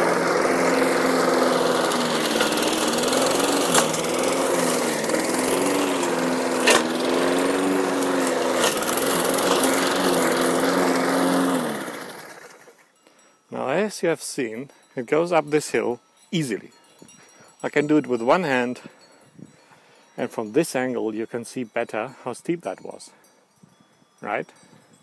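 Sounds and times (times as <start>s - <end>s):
lawn mower engine: 0.0s - 12.9s.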